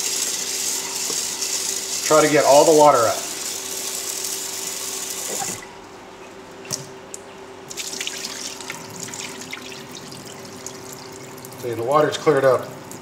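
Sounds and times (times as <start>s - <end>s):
water dripping: 6.7s - 11.8s
water pouring into steel sink: 7.7s - 11.7s.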